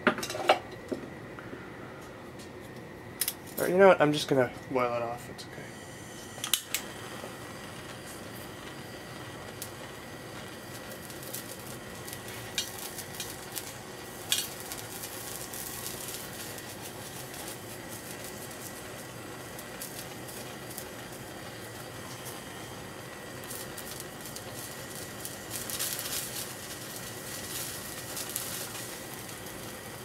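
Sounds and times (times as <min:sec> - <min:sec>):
torch flame hissing: 0:00.0 - 0:30.0
flux paste sizzling: 0:00.2 - 0:30.0
sharp crackles and pops: 0:02.4 - 0:04.5, 0:05.7 - 0:30.0.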